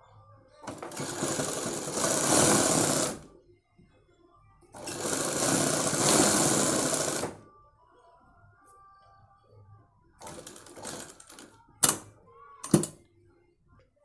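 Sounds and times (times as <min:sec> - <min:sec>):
sewing machine stitching: 0:00.6 - 0:03.3, 0:04.8 - 0:07.4, 0:10.2 - 0:12.0.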